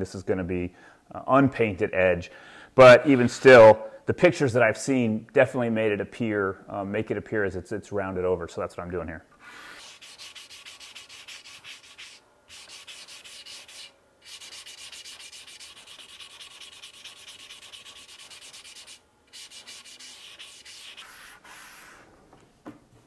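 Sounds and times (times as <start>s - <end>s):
sanding block rubbing wood: 9.6s - 21.9s.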